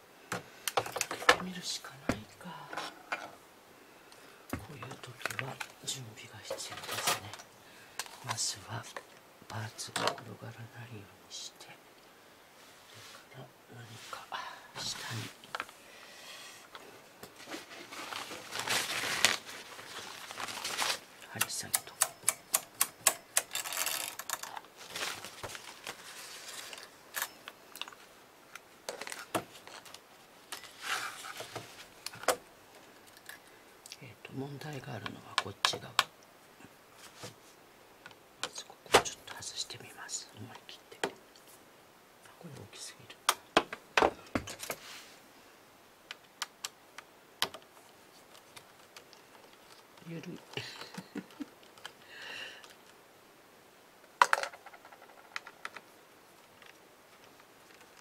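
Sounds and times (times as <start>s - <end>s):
short rustle: 17.3s - 21.2s, 23.6s - 27.0s, 30.6s - 32.0s, 44.5s - 45.3s
knitting machine parts clicking: 21.4s - 24.6s.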